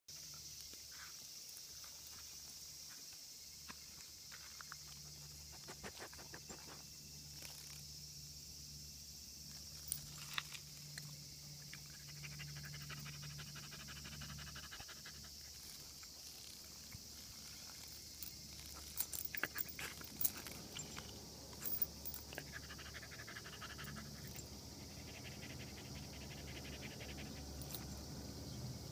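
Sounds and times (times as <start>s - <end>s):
cicadas chorus: 0.1s - 28.9s
dog panting and sniffing: 5.0s - 6.8s, 11.8s - 16.1s, 18.7s - 27.8s.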